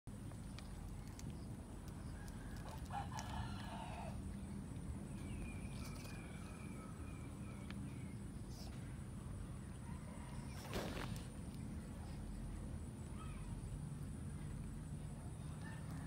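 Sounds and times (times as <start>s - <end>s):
low steady hum: 0.1s - 16.0s
rooster crowing: 2.2s - 4.2s, 5.8s - 7.6s.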